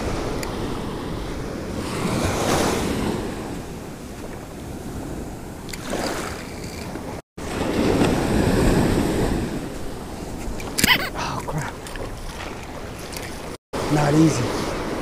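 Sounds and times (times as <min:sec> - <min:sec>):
ocean surf washing on beach: 0:00.0 - 0:10.8, 0:12.4 - 0:15.0
wind rumbling on microphone: 0:00.0 - 0:15.0.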